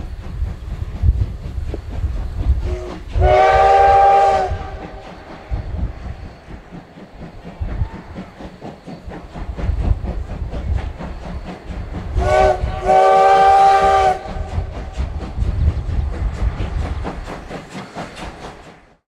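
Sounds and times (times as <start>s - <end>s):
train rumble and clatter: 0.0s - 19.0s
steam locomotive whistle: 2.6s - 5.5s, 12.1s - 14.8s.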